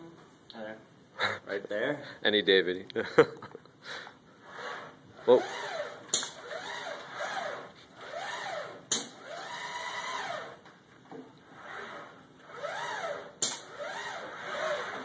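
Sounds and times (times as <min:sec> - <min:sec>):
gripper sharp bursts: 0:04.4 - 0:10.5
robot arm motors whining: 0:04.4 - 0:10.6, 0:11.5 - 0:15.0.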